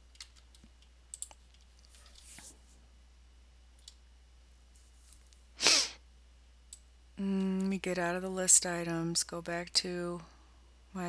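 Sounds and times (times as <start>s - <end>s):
computer mouse clicks: 0.2s - 1.9s.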